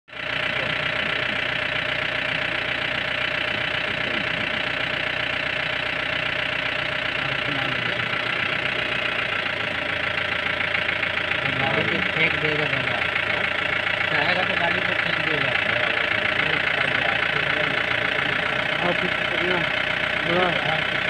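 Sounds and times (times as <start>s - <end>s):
vehicle engine idling: 0.1s - 21.0s.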